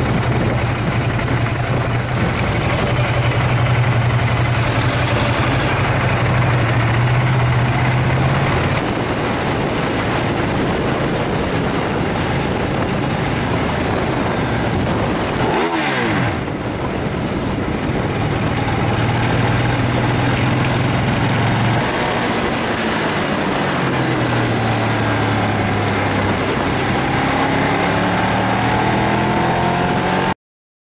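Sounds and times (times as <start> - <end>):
motorcycle engine running: 0.0 - 28.4
wind rushing over microphone: 0.0 - 30.3.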